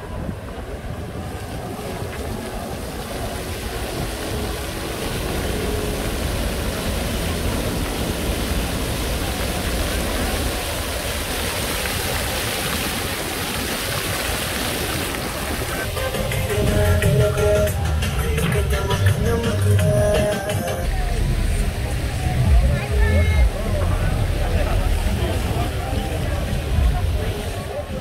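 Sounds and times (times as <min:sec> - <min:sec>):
fountain water splashing: 0:00.0 - 0:28.0.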